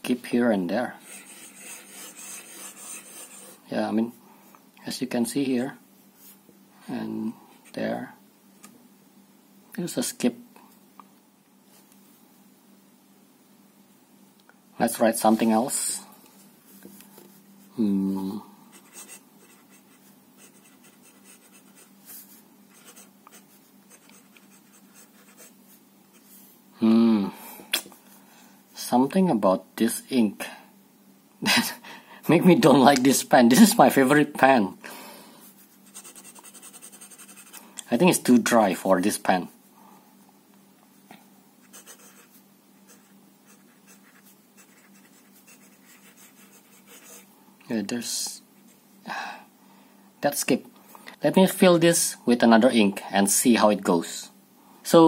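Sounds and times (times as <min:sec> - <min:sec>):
pen nib scratching on paper: 0:01.0 - 0:03.6, 0:35.8 - 0:37.6, 0:41.7 - 0:47.3.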